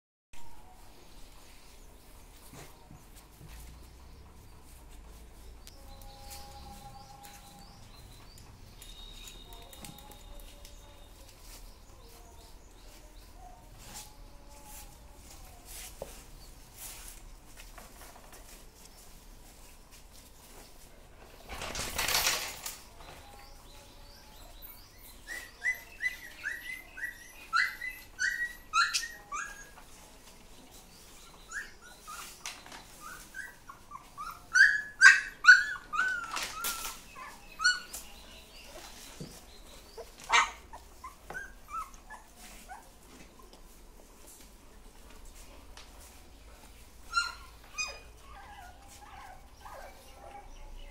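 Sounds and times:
puppies whimpering and yelping: 0:24.4 - 0:30.0, 0:30.9 - 0:43.8, 0:46.7 - 0:50.9.

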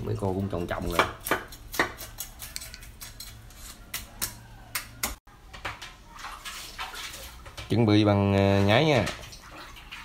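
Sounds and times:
plastic basins clicking and knocking: 0:07.4 - 0:09.6.

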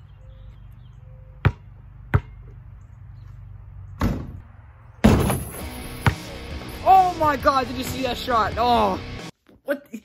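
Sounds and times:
basketball bouncing on pavement: 0:01.4 - 0:03.4, 0:04.0 - 0:04.4, 0:05.0 - 0:06.4.

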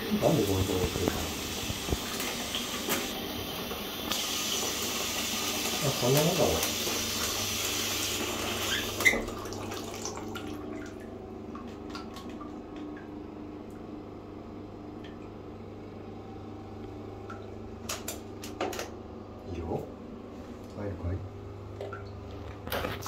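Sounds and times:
water dripping into bath: 0:09.0 - 0:13.9, 0:14.9 - 0:15.4, 0:16.8 - 0:18.8, 0:21.7 - 0:22.3.

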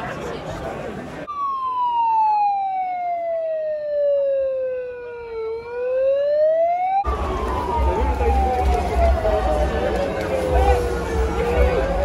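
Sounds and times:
crowd noise: 0:00.0 - 0:01.8, 0:07.0 - 0:12.0
siren wailing: 0:01.3 - 0:12.0.

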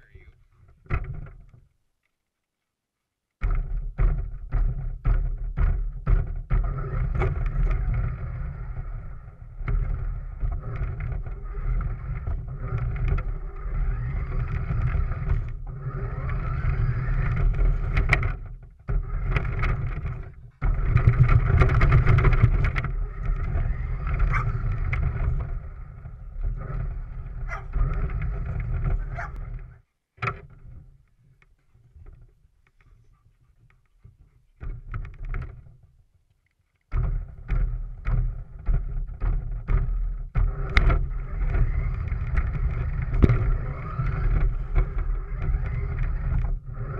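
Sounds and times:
remote-control car motor running: 0:06.6 - 0:29.4, 0:40.4 - 0:46.9.

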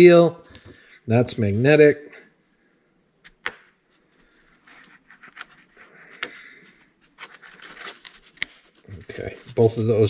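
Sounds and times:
soft scraping of parts: 0:03.9 - 0:10.0.

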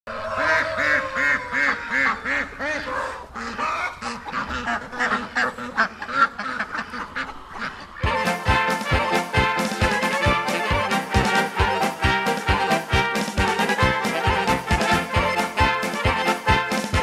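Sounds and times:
ducks quacking: 0:00.1 - 0:17.0
music with beat and brass: 0:08.0 - 0:17.0.

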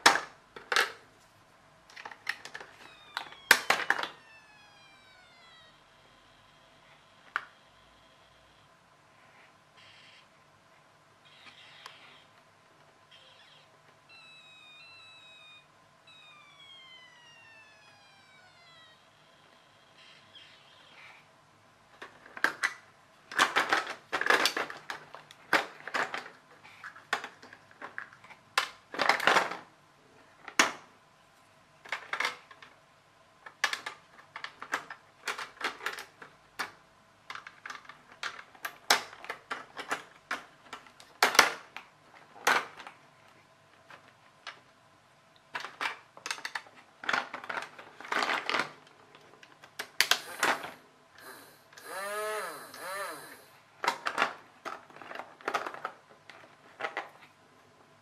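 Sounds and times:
plastic parts clicking and snapping: 0:01.9 - 0:04.3, 0:22.0 - 0:29.6, 0:33.4 - 0:43.0, 0:45.4 - 0:57.2.

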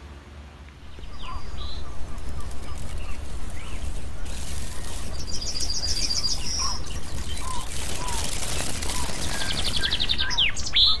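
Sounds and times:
steady low rumble: 0:00.7 - 0:11.0
songbird trill: 0:00.8 - 0:11.0.

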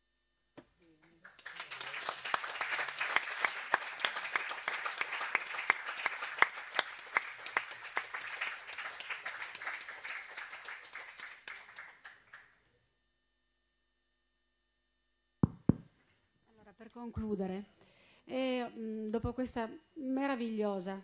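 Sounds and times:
audience applauding: 0:00.9 - 0:12.6.

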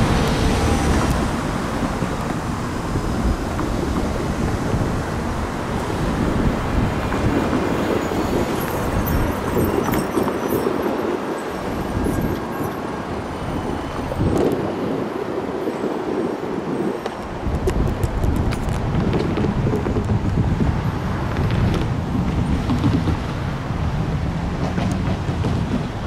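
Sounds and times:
traffic over railroad crossing: 0:00.0 - 0:26.0
wind buffeting microphone: 0:00.0 - 0:26.0.

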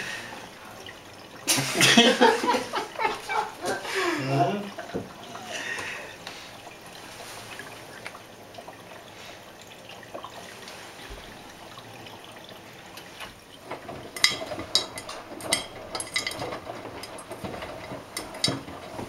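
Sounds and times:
water trickling and dripping: 0:00.0 - 0:19.0
washing machine drum clicks and knocks: 0:13.6 - 0:19.0.

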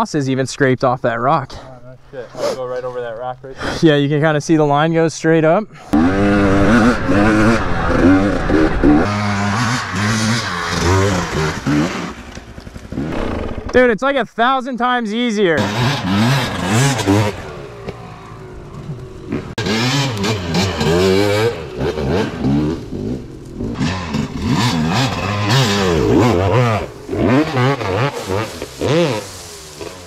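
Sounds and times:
two-stroke dirt bike engines revving: 0:05.8 - 0:13.8, 0:15.4 - 0:30.0.

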